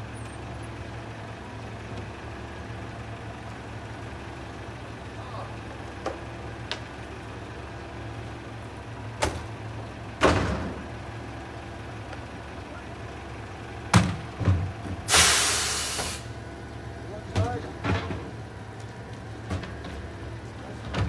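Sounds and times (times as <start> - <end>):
diesel engine idling: 0.0 - 21.0
air release hiss: 15.1 - 16.3.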